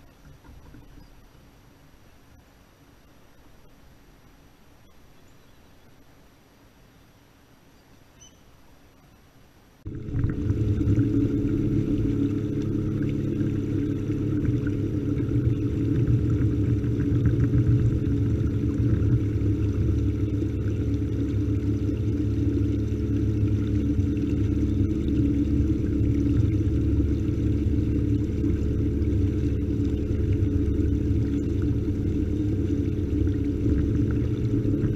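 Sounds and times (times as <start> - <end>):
water rumble: 0.0 - 34.9
wind: 0.0 - 34.9
electric motor humming: 9.9 - 34.9.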